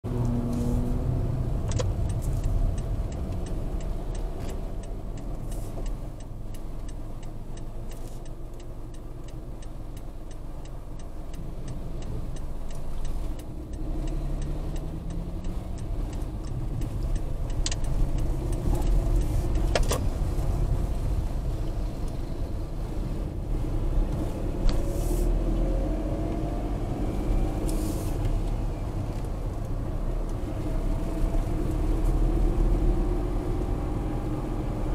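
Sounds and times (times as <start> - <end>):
car engine and tyre rumble: 0.0 - 34.9
sharp clicks: 1.6 - 21.0.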